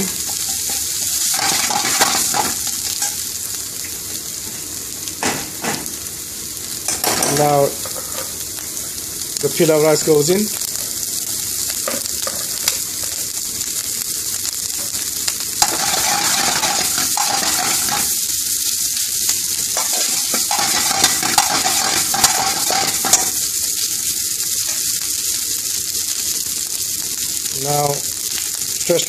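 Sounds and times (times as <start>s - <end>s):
rice sizzling in frying pan: 0.0s - 29.0s.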